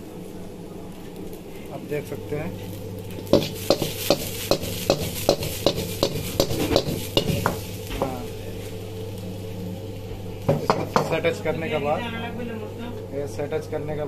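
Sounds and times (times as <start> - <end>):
sizzling oil: 0.0 - 13.4
range hum: 0.0 - 14.0
wok metal knocking: 3.2 - 8.2, 10.5 - 11.3.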